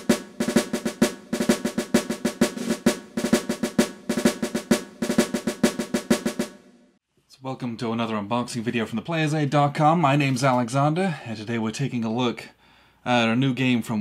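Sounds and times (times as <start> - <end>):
snare drum cadence: 0.0 - 6.6.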